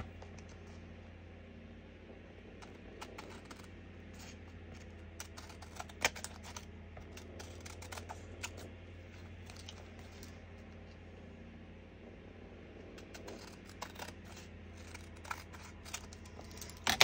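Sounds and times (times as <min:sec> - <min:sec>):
card being cut and handled: 0:02.6 - 0:10.4, 0:13.0 - 0:17.0.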